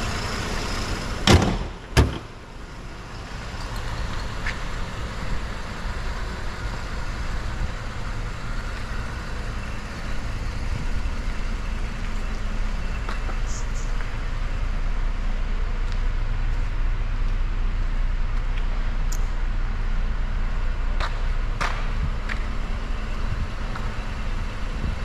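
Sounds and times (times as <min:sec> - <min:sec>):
car engine idling: 0:00.0 - 0:25.0
car hood thumping shut: 0:01.2 - 0:02.3.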